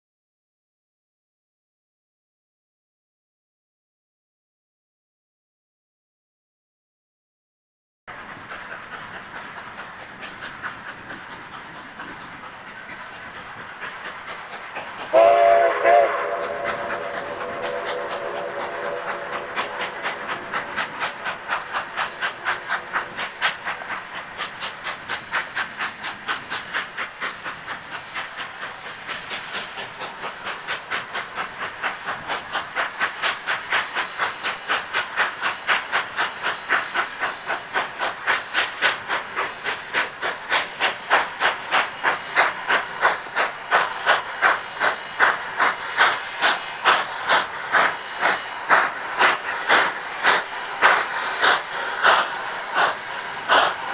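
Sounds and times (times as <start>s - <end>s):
steam locomotive exhaust chuffing: 8.1s - 53.9s
steam whistle: 15.1s - 20.2s.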